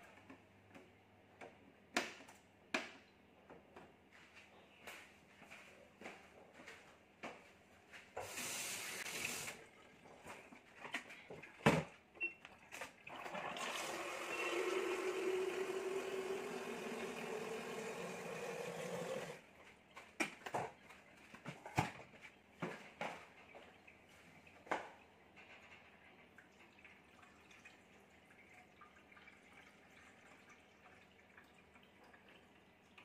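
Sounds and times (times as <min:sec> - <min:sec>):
tap water filling a container: 0:12.8 - 0:19.4, 0:22.6 - 0:33.0.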